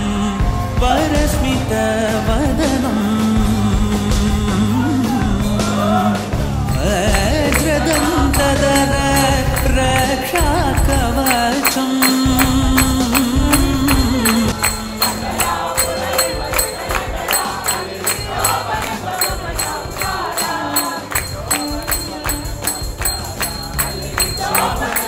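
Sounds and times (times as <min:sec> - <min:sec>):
metallic percussion beat: 0:06.6 - 0:25.0
held melody line: 0:06.7 - 0:25.0.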